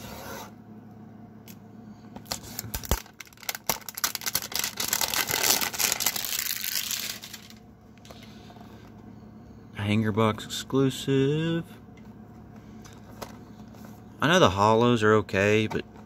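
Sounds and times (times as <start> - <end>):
packaging clicks and snaps: 2.3 - 7.4
packaging crinkling tear: 2.3 - 7.6.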